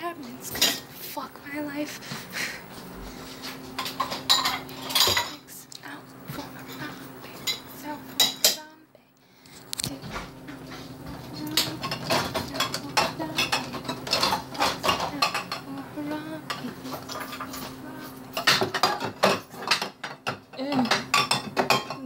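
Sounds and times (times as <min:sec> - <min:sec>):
dishes and cutlery clinking: 0:00.5 - 0:00.9, 0:03.4 - 0:05.5, 0:06.4 - 0:08.6, 0:10.0 - 0:15.7, 0:16.4 - 0:22.0.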